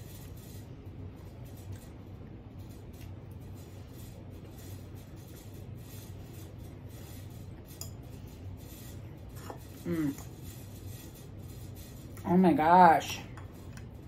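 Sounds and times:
steady low hum: 0.0 - 14.0
fork scraping glass dish: 6.0 - 12.2.

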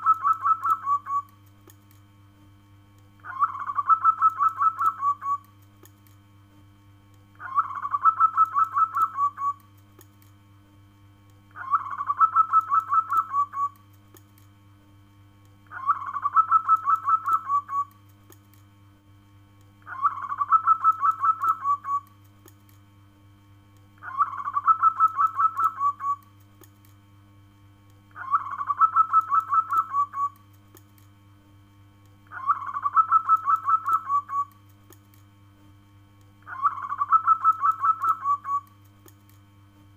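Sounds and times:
dove cooing: 3.3 - 5.4, 7.4 - 9.6, 11.6 - 13.7, 15.7 - 17.9, 19.9 - 22.0, 24.0 - 26.2, 28.2 - 30.4, 32.3 - 34.5, 36.5 - 38.7.

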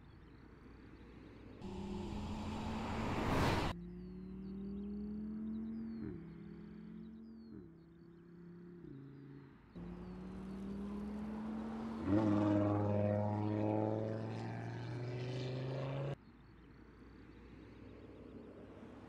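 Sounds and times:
car engine pulling hard: 1.6 - 3.7.

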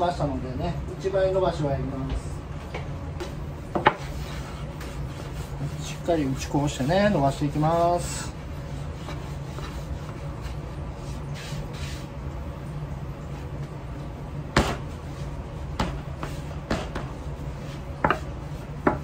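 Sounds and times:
steady low hum: 0.0 - 19.0
rolling pin rolling dough: 3.2 - 12.4, 13.2 - 19.0.

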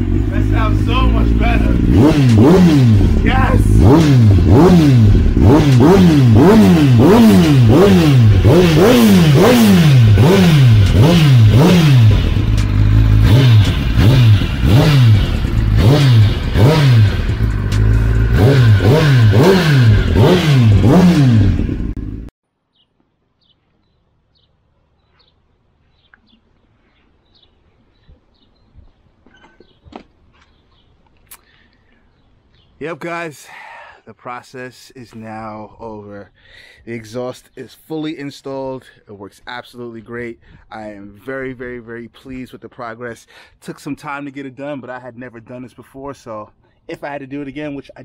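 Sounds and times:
motorcycle engine revving: 0.0 - 22.3.

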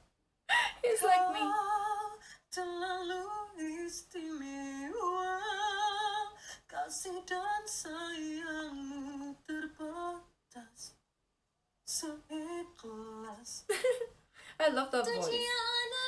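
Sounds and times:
boy singing with vibrato: 0.8 - 10.7.

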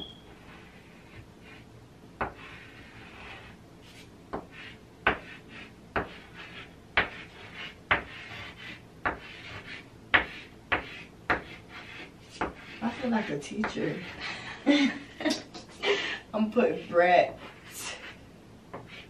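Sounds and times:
chalk scratching: 0.3 - 14.2, 16.6 - 18.2, 18.8 - 19.0
chalk tapping on chalkboard: 2.2 - 3.5, 4.3 - 13.9, 18.7 - 19.0.

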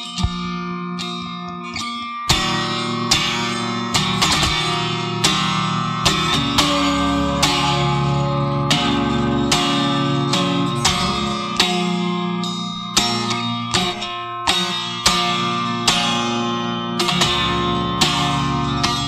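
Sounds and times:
guitar picking and strumming: 0.0 - 19.0.

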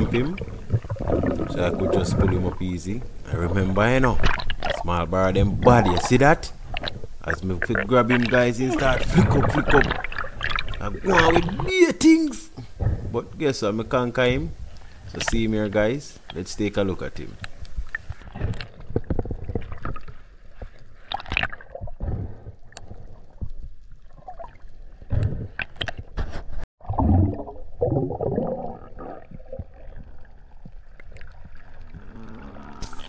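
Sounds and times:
water gurgling and bubbling: 0.0 - 11.8, 26.8 - 33.0.

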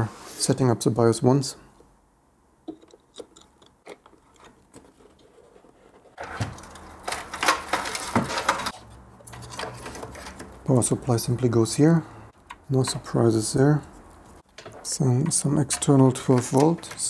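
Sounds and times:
rustling and clicking of hardware: 2.7 - 10.7, 14.0 - 17.0.

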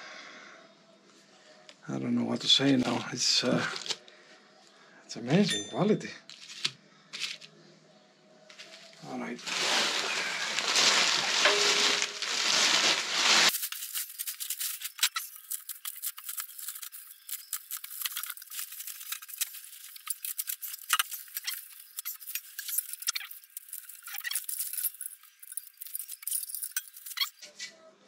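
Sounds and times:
plastic bag rustling: 8.5 - 27.3
bubble wrap crackling: 8.5 - 27.4.

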